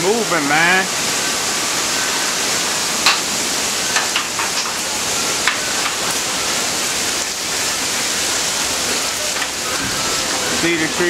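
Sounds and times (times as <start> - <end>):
heavy rain and wind: 0.0 - 11.0.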